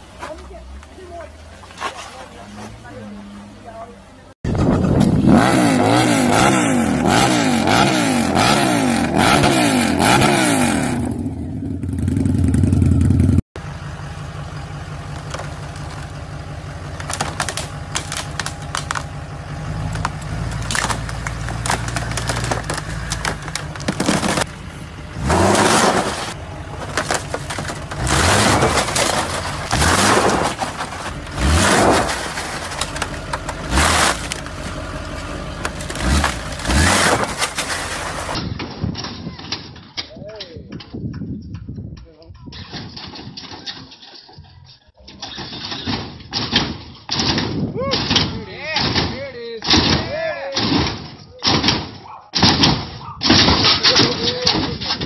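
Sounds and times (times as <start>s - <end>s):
motorcycle engine revving: 4.6s - 14.0s, 23.4s - 26.8s, 27.8s - 38.4s
pickup truck engine revving: 5.1s - 11.2s, 22.4s - 38.4s
cracks and clatter: 15.1s - 16.2s, 16.8s - 24.6s, 25.3s - 40.1s, 45.1s - 55.0s.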